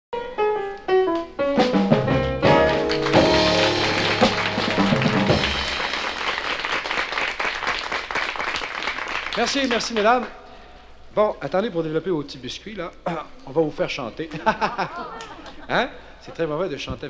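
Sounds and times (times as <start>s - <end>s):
band flourish with drums: 1.6s - 6.6s
audience applause: 2.4s - 10.3s.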